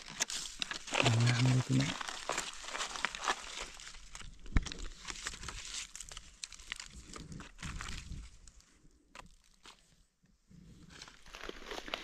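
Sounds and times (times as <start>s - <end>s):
dry leaves rustling and crackling: 0.0s - 8.3s.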